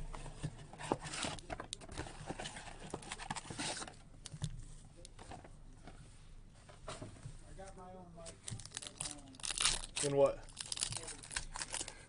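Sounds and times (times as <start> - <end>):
rustling foil packs and cardboard: 8.3 - 12.0.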